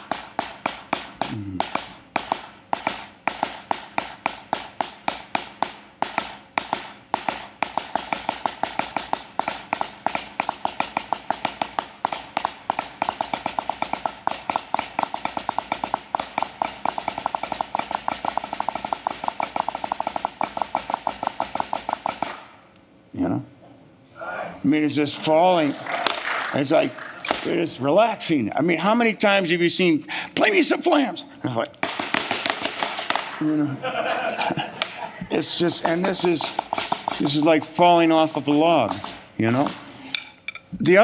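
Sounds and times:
snare drum double strokes: 0.0s - 22.5s, 35.6s - 39.9s.

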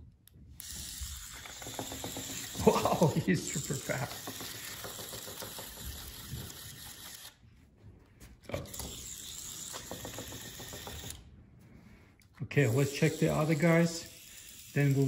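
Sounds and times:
toy robot vibration motor buzzing: 0.6s - 7.4s, 8.5s - 11.2s, 12.7s - 15.0s.

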